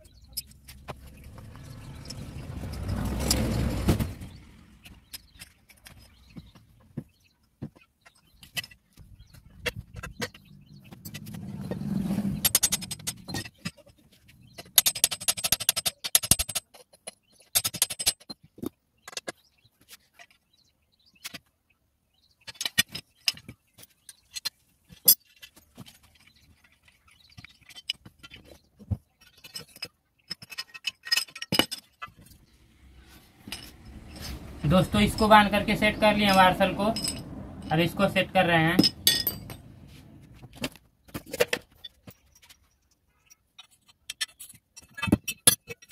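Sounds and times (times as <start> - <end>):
scraping and rustling: 22.5 - 45.2
low hum: 32.4 - 40.5
metallic clinks: 32.8 - 39.9.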